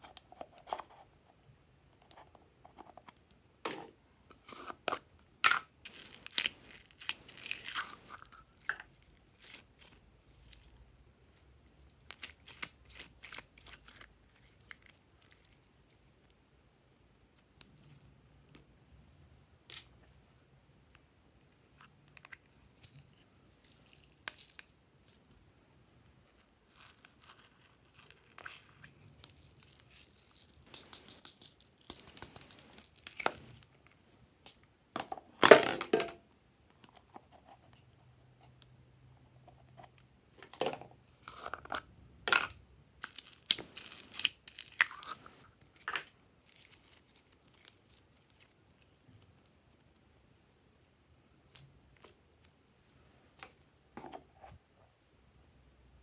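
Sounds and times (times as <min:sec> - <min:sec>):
crinkling and rustling decorations: 0:02.0 - 0:16.5, 0:21.4 - 0:25.5, 0:26.2 - 0:34.4, 0:39.3 - 0:54.9.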